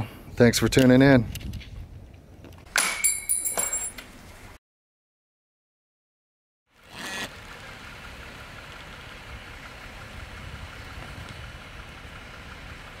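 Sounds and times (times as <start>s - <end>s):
car engine idling: 7.3s - 13.0s.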